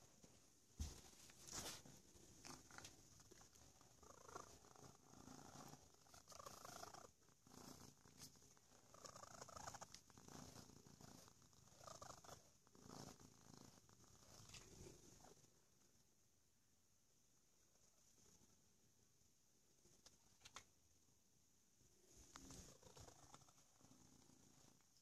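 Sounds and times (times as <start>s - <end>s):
cat purring: 0.8s - 16.0s, 21.8s - 25.0s
brush stroking fur: 0.9s - 15.3s.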